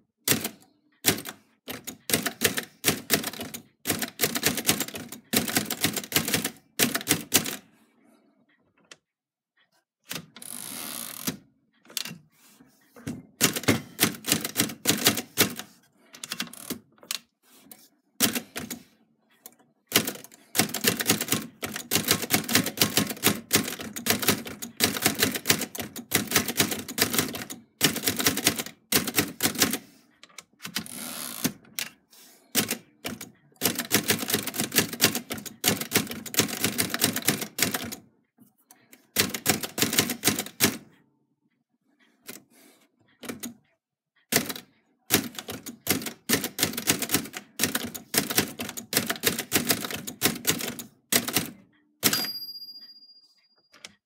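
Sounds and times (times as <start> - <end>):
typewriter carriage return: 0.3 - 7.6, 13.0 - 17.2, 19.9 - 29.8, 30.6 - 31.9, 32.5 - 38.0, 39.2 - 40.8, 44.3 - 52.4
typewriter keys clacking: 0.3 - 7.6, 13.4 - 17.2, 18.2 - 18.9, 19.9 - 29.8, 32.5 - 38.0, 39.1 - 40.8, 44.3 - 52.4.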